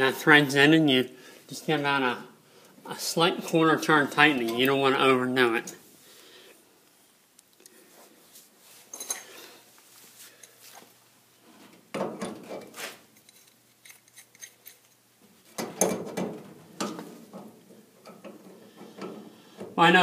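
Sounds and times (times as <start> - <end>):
wrench clinking and scraping metal: 8.9 - 9.4, 12.2 - 15.0.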